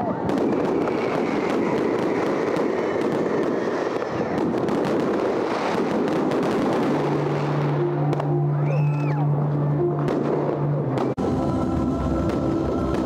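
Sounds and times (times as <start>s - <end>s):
fireworks popping and banging: 0.0s - 8.3s, 12.1s - 13.0s.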